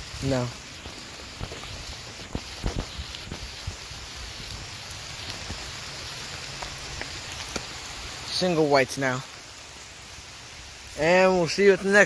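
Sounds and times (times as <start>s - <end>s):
rain on leaves: 0.0s - 12.0s
rustling: 0.3s - 8.1s.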